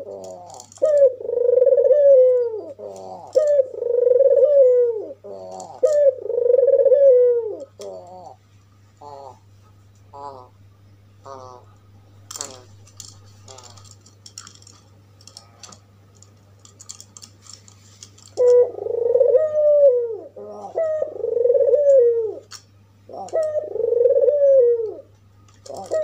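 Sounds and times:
dove cooing: 0:00.0 - 0:08.4, 0:09.0 - 0:10.6, 0:11.2 - 0:13.9, 0:18.4 - 0:26.0.

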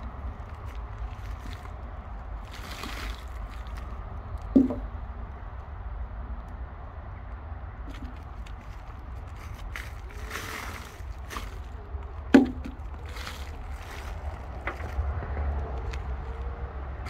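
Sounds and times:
hands rummaging through compost: 0:00.0 - 0:04.9, 0:07.9 - 0:16.6
steady low rumble: 0:00.0 - 0:17.0.

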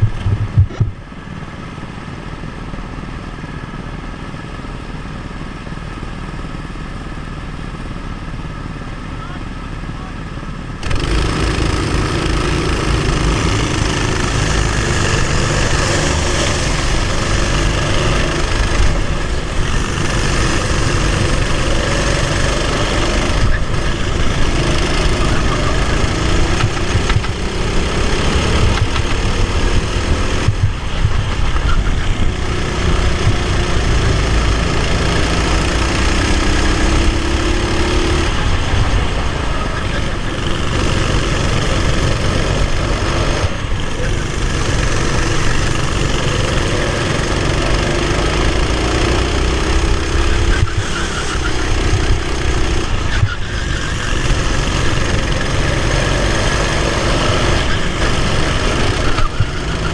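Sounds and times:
kart engine revving: 0:07.2 - 0:59.9
wind rush: 0:13.1 - 0:34.2.

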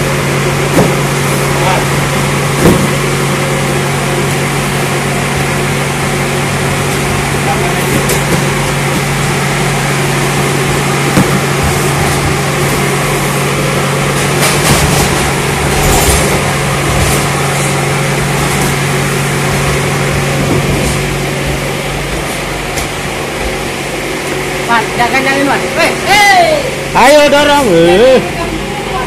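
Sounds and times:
machine droning with low hum: 0:00.0 - 0:29.0
cardboard cartons knocking: 0:00.7 - 0:01.3.

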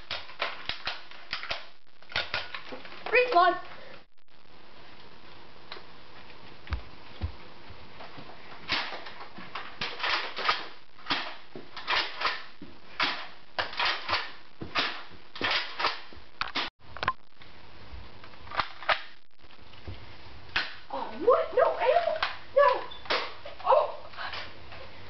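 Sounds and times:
sharp clicks and clacks: 0:00.0 - 0:03.1, 0:08.7 - 0:17.2.

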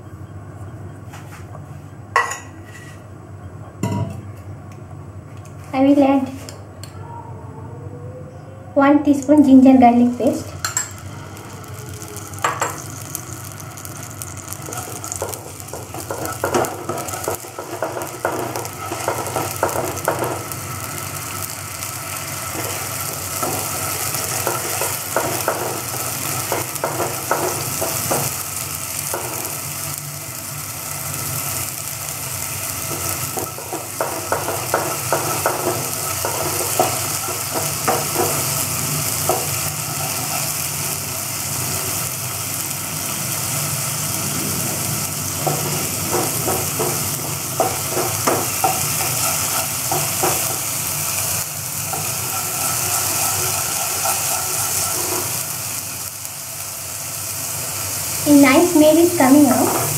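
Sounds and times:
spatula scraping a pan: 0:02.6 - 0:03.0, 0:45.4 - 0:50.6, 0:51.9 - 0:55.6
paste sizzling in hot oil: 0:10.2 - 0:59.9.

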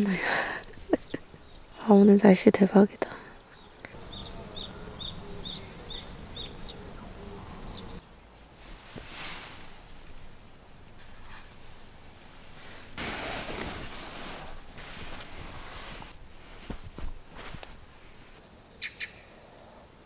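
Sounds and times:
small bird chirping: 0:00.9 - 0:02.0, 0:03.4 - 0:08.0, 0:09.5 - 0:12.5, 0:13.2 - 0:16.3
bedding fabric rustling: 0:08.6 - 0:18.4.

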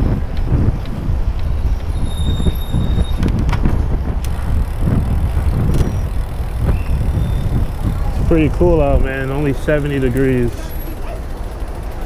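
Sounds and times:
wind buffeting microphone: 0:00.0 - 0:10.6
street traffic: 0:00.0 - 0:12.0
tyre noise: 0:00.0 - 0:12.0
faint high squeal: 0:01.9 - 0:03.2.

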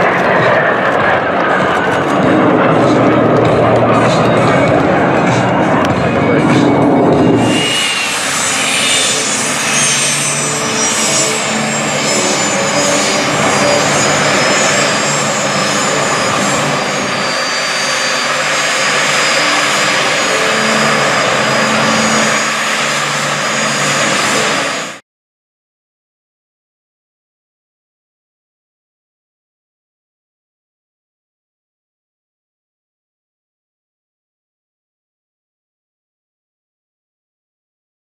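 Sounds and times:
jet engines idling: 0:00.0 - 0:25.0.

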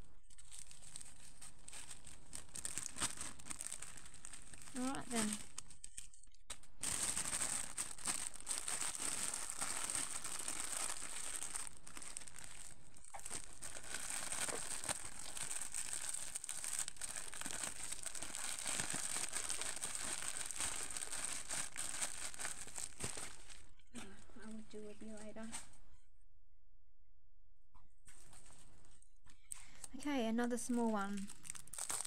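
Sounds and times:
plastic packaging crinkling: 0:00.0 - 0:23.8, 0:30.6 - 0:32.0.

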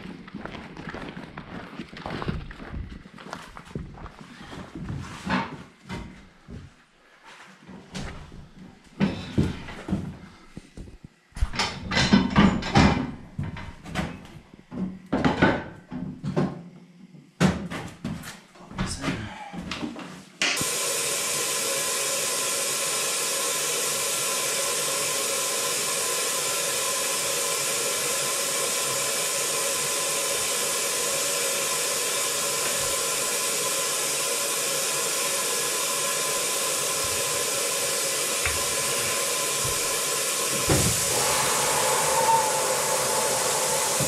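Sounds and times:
compressed air hissing: 0:20.6 - 0:44.0.

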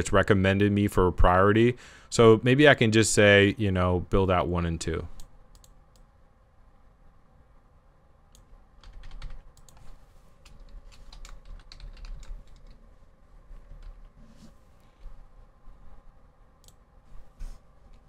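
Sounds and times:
computer keyboard typing: 0:08.8 - 0:12.8, 0:13.6 - 0:14.1.

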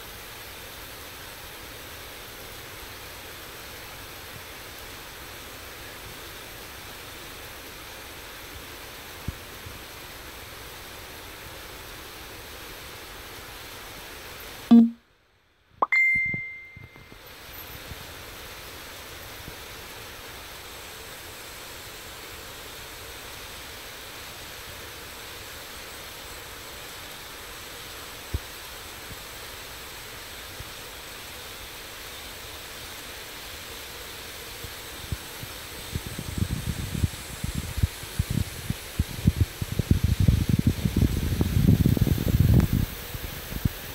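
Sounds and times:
ringing ding: 0:14.7 - 0:15.0, 0:15.8 - 0:17.1.

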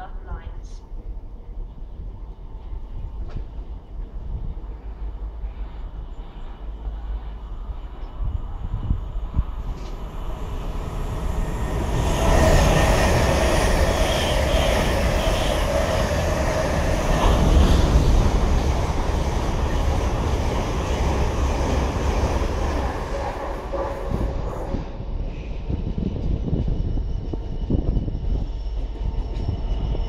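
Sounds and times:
train rail rumble: 0:00.0 - 0:30.0.

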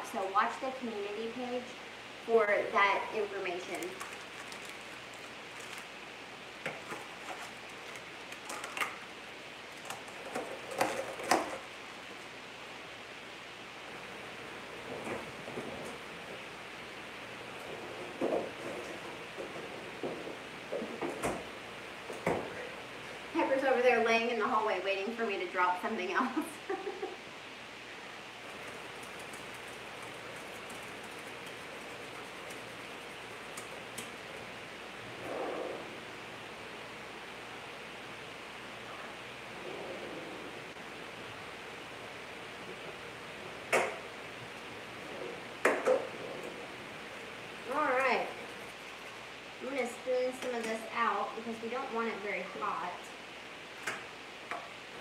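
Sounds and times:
plastic food package crinkling: 0:03.8 - 0:06.0.

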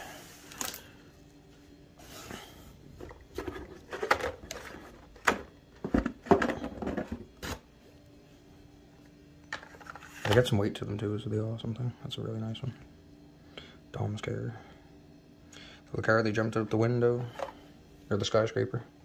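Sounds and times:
cardboard and plastic packs rustling: 0:02.0 - 0:07.7.

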